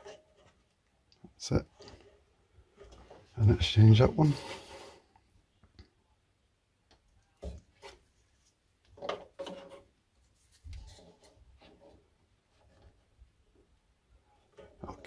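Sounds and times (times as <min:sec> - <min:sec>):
plastic tubes rubbing: 0:01.7 - 0:05.1.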